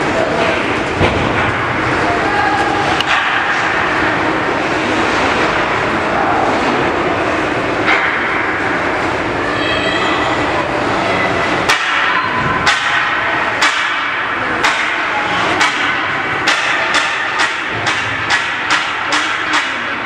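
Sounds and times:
arena crowd noise: 0:00.0 - 0:20.0
sharp knocks: 0:11.7 - 0:20.0.

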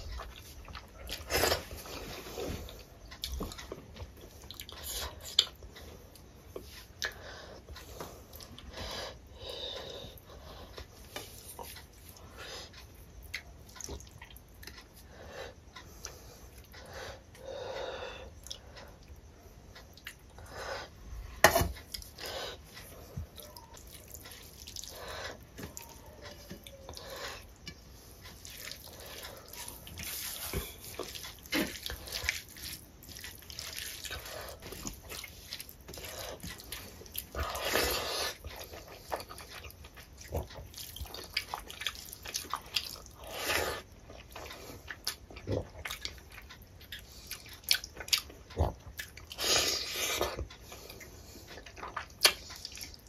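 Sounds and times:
hand mixing rice squelching: 0:22.9 - 0:43.9
chewing mouth sounds: 0:28.2 - 0:53.0.

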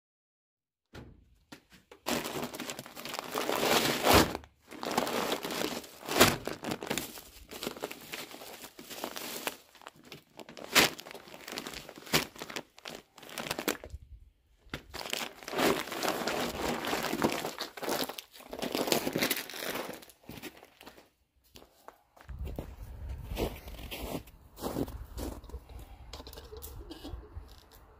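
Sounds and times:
plastic bags crinkling and rustling: 0:01.6 - 0:21.1.

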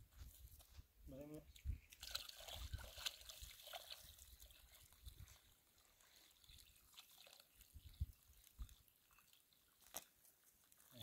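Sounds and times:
water trickling onto dirt: 0:00.1 - 0:11.0.

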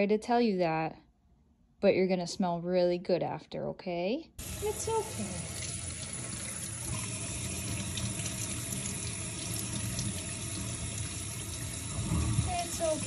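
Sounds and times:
water splashing into steel sink: 0:04.4 - 0:13.0.

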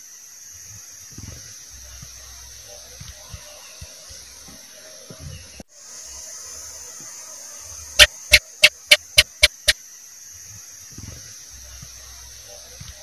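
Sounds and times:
steady high hiss: 0:00.0 - 0:13.0
gecko chirping: 0:08.0 - 0:09.8.

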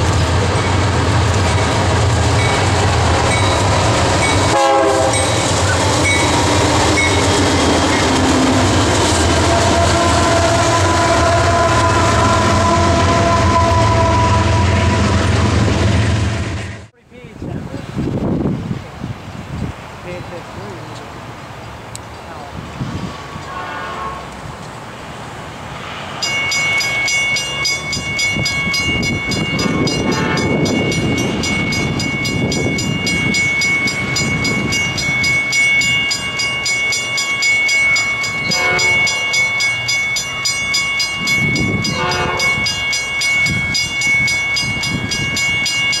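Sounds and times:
crossing warning bell ringing: 0:00.0 - 0:15.4, 0:26.1 - 0:46.0
diesel train rumbling: 0:00.0 - 0:46.0.

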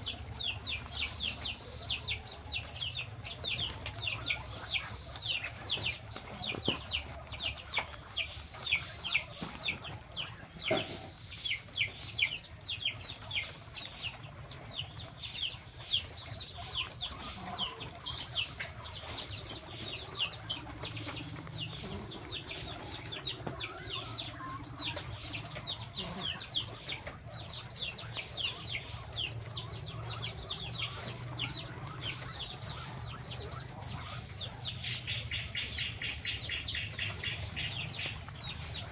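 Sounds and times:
small animals peeping: 0:00.0 - 0:38.9.

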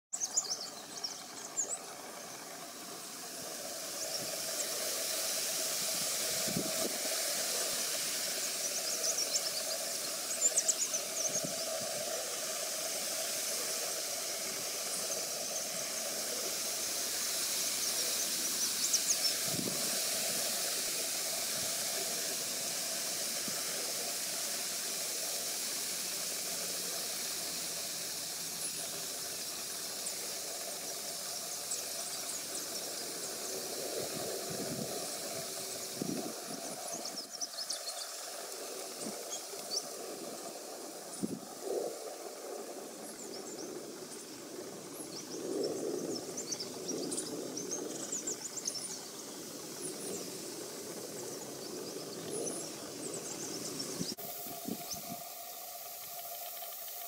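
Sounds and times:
steady hiss: 0:00.2 - 0:57.0.

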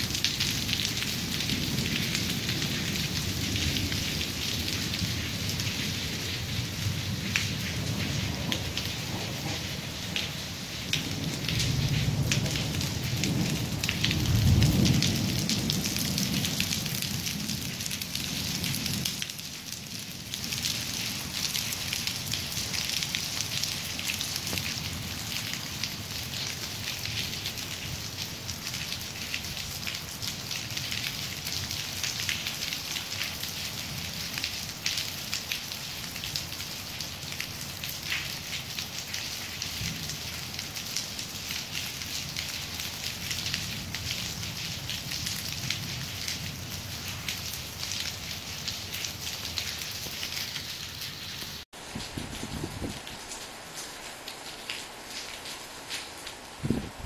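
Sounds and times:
steady rain: 0:00.0 - 0:57.0
thunder rumble: 0:00.3 - 0:19.2, 0:56.6 - 0:57.0.

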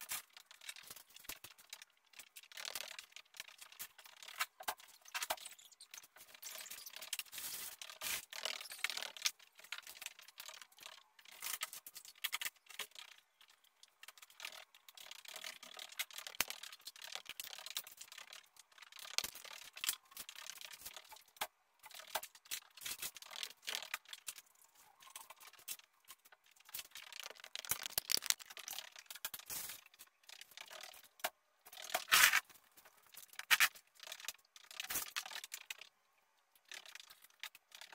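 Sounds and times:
rustling and handling noises: 0:16.2 - 0:35.8.

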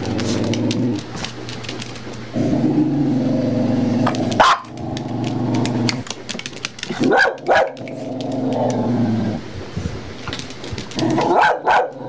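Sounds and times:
dog growling: 0:00.0 - 0:01.5, 0:02.3 - 0:06.2, 0:06.8 - 0:09.5, 0:10.8 - 0:12.0
small dog yapping: 0:04.4 - 0:04.7, 0:11.1 - 0:12.0.

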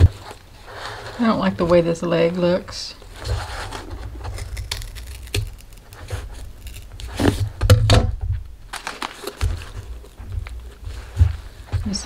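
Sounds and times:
scissors cutting cardboard: 0:03.4 - 0:07.6.

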